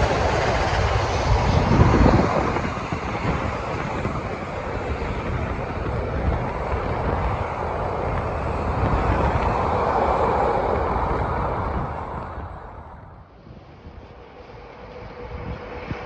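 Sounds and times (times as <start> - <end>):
train carriages rolling on rails: 0.0 - 13.0
wind buffeting microphone: 0.0 - 16.0.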